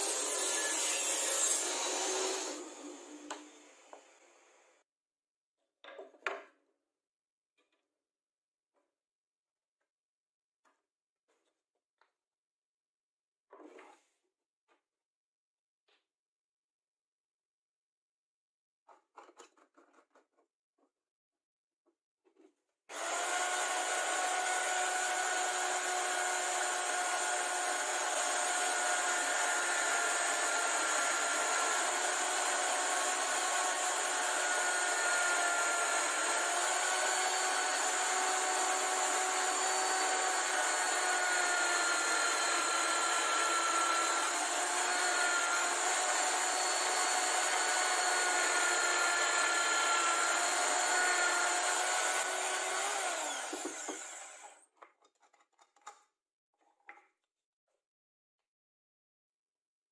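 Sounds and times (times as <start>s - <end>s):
electric drill motor whine: 22.9s - 54.6s.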